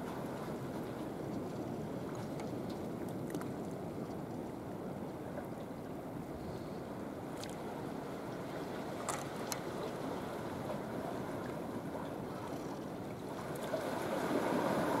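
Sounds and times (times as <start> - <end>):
harbour water washing: 6.9 - 15.0.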